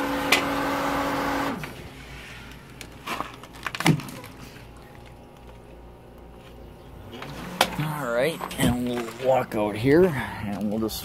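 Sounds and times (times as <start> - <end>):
pool pump motor humming: 0.0 - 2.0, 4.6 - 10.1
knocks and handling noises: 2.4 - 9.4.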